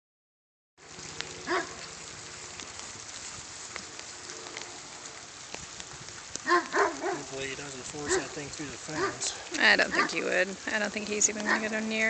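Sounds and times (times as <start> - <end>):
crackly outdoor hiss: 0.8 - 12.0
dog barking: 1.5 - 1.8, 6.4 - 7.3, 8.0 - 9.3, 9.9 - 10.2, 11.5 - 11.7.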